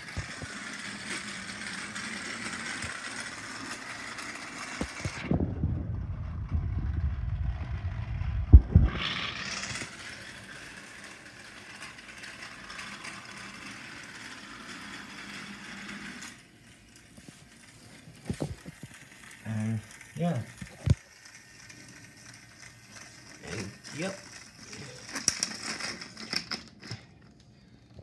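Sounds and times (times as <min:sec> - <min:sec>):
toy train motor whirring: 0:00.0 - 0:05.4, 0:06.1 - 0:27.2
low rumble: 0:05.2 - 0:09.7.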